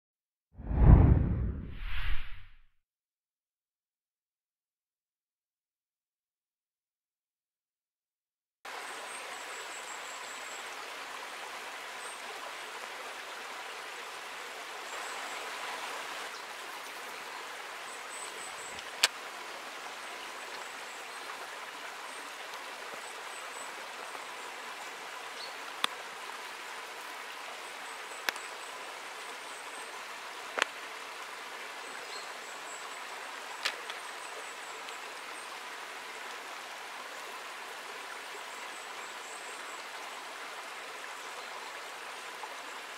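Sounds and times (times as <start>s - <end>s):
stream trickling over rocks: 8.7s - 42.9s.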